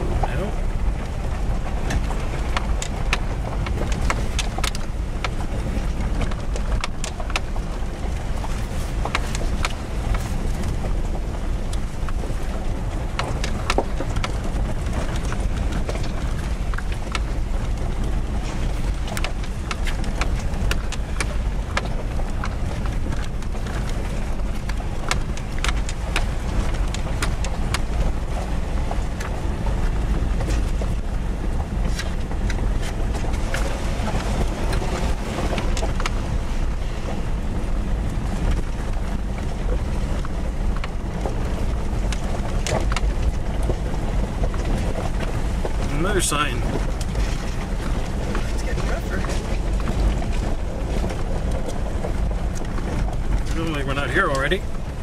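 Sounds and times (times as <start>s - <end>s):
engine and tyre rumble: 0.0s - 55.0s
rattling in the cab: 0.0s - 55.0s.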